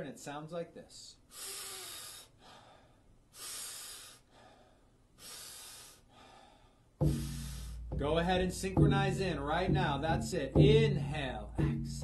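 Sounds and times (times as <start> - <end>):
man inhaling through mouth: 1.3 - 7.9.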